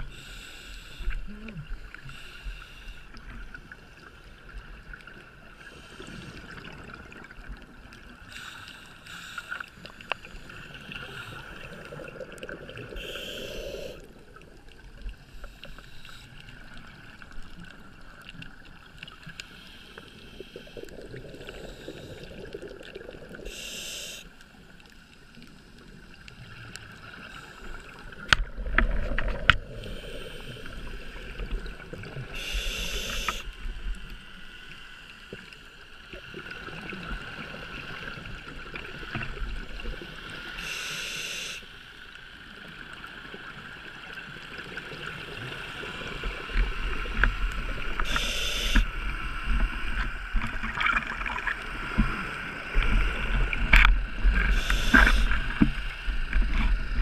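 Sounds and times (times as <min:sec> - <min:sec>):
regulator inhalation hiss: 0:00.1 - 0:01.2, 0:02.0 - 0:03.1, 0:08.3 - 0:10.0, 0:12.9 - 0:14.1, 0:19.4 - 0:22.4, 0:23.4 - 0:24.6, 0:29.7 - 0:31.4, 0:32.3 - 0:33.6, 0:40.6 - 0:41.9, 0:47.9 - 0:48.9, 0:54.4 - 0:55.9
bubbles gurgling: 0:10.9 - 0:13.2, 0:20.8 - 0:23.5.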